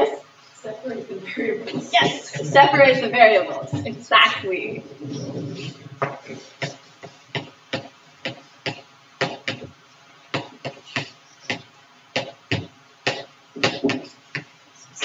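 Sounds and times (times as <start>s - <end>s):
chalk tapping and scraping: 5.6s - 8.5s.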